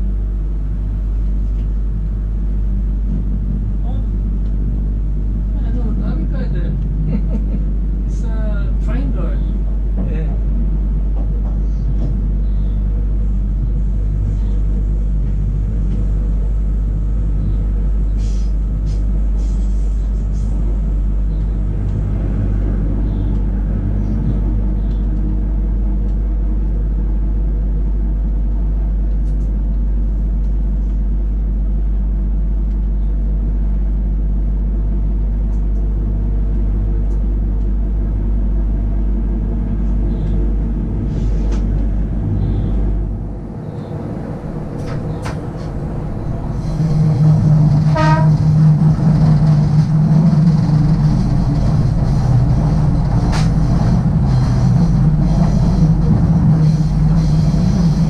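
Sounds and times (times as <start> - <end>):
constant hum: 0.0 - 58.0
train rumbling on track: 0.0 - 58.0.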